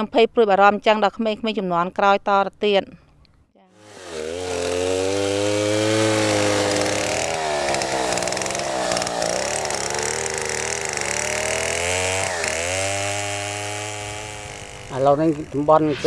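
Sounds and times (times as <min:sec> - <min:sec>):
chainsaw cutting wood: 0:03.7 - 0:15.8.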